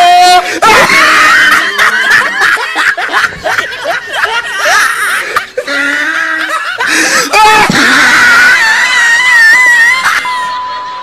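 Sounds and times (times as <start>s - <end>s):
people laughing: 0.4s - 11.0s.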